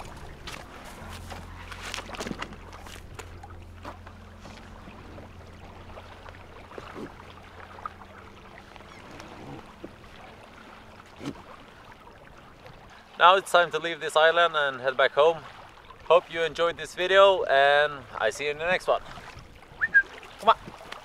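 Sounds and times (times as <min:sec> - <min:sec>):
low steady rumble: 0:00.0 - 0:13.1.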